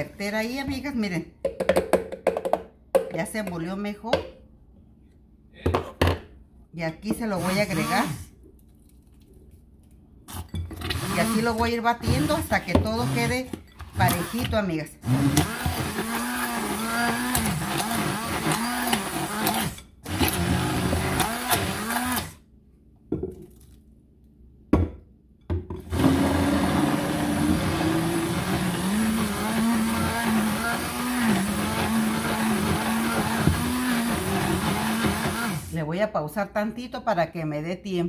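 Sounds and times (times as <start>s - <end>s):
hand blender running in batter: 7.4s - 8.2s, 10.9s - 12.4s, 14.0s - 22.3s, 25.9s - 35.7s.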